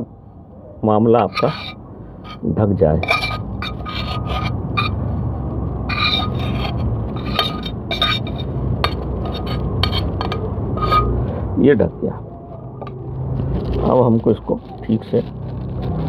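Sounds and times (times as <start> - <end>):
metal bowl scraping a steel pan: 1.3 - 2.4, 3.0 - 5.0, 5.9 - 11.2
low rumble: 3.4 - 16.0.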